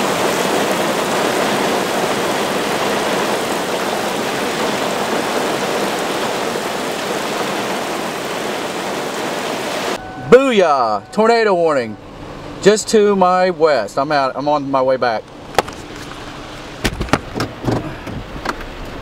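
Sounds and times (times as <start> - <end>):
heavy rain on a car: 0.0 - 10.0.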